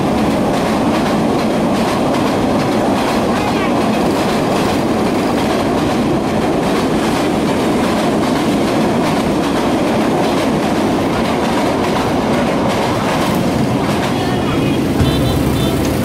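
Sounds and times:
rail joint clicks: 0.0 - 16.0
steel wheels on rails: 0.0 - 16.0.

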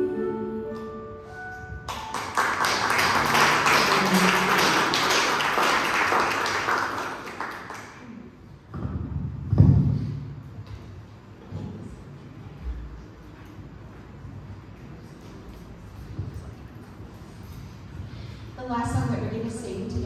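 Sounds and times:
crowd applauding: 1.8 - 8.3.

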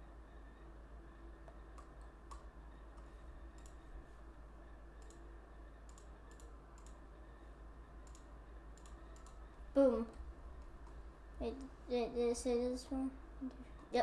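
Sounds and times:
faint low hum: 0.0 - 14.0
computer mouse clicking: 1.4 - 3.8, 5.0 - 7.0, 8.0 - 9.4.

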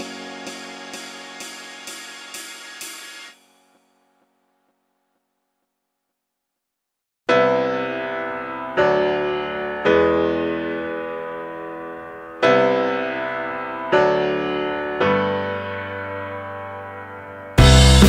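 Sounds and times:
slow keyboard chords: 0.0 - 4.0.

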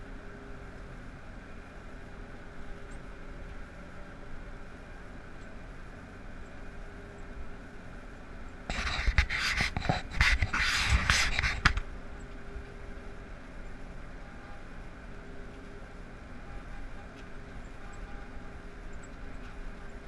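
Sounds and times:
windrower engine drone: 0.0 - 20.0
loud rustling crackling noise: 8.6 - 20.0.

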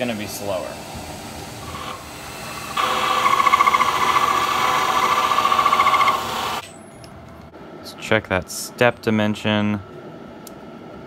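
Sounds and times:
metal lathe spinning: 1.2 - 6.6.

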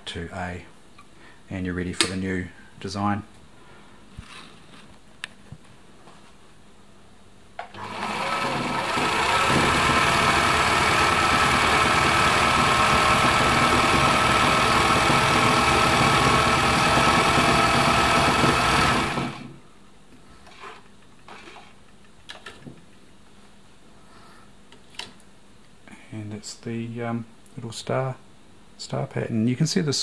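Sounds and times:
sewing machine running: 7.7 - 19.6.

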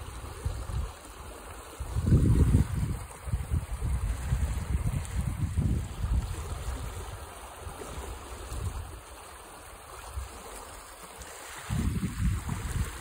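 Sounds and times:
wind buffeting microphone: 0.0 - 1.0, 1.7 - 9.1, 11.5 - 13.0
stream water flowing: 0.0 - 13.0.

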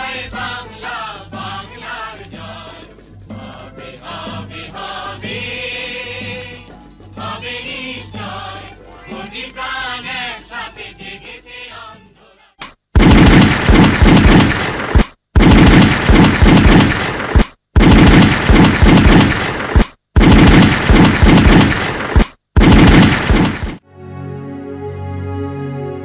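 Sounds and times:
soft music: 0.0 - 12.6, 23.8 - 26.0
machine-gun bursts: 13.0 - 23.8.

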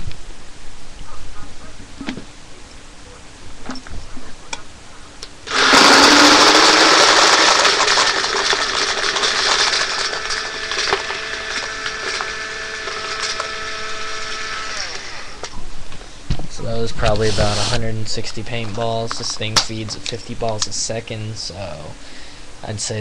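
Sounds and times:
paintballs rattling through tube: 6.2 - 12.3
loader motor whine: 8.2 - 15.6.

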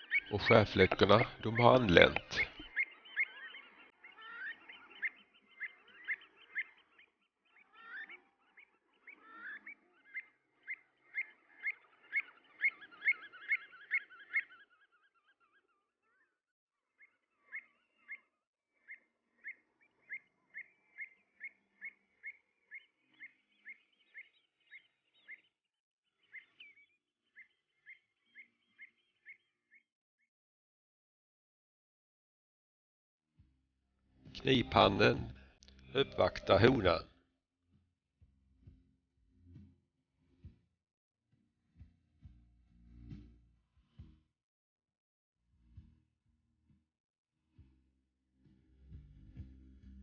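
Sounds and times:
birds calling: 0.0 - 29.9, 34.4 - 37.1.

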